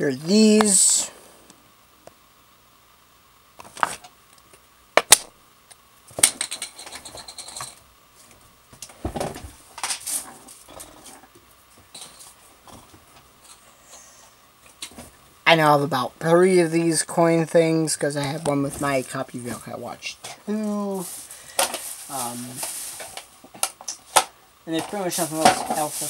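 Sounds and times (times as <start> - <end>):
packaging rustling: 20.9 - 24.2.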